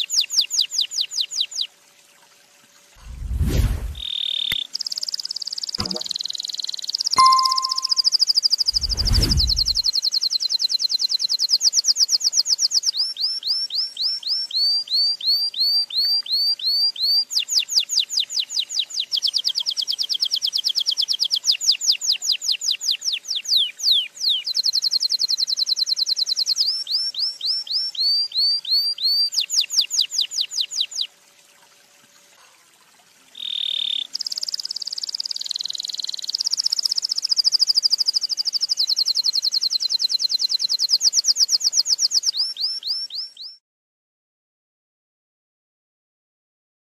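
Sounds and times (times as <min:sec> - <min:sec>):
canary singing trills: 0:04.0 - 0:08.2.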